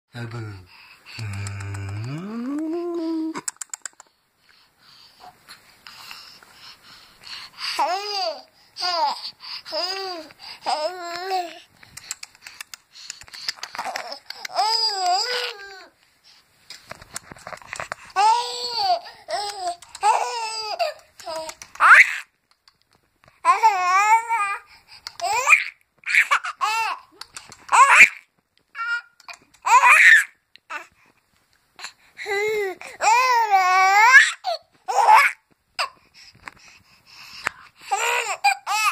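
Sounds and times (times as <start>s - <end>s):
baby squealing laugh: 20.0s - 22.3s, 25.2s - 27.0s, 27.7s - 28.2s, 28.8s - 30.3s.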